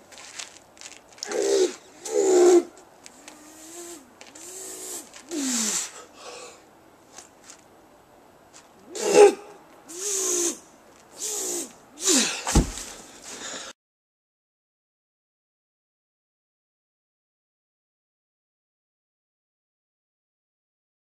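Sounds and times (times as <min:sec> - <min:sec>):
man breathing hard and grunting: 0:01.2 - 0:02.7, 0:03.3 - 0:06.7, 0:11.2 - 0:12.5
deep thump: 0:12.5 - 0:12.9.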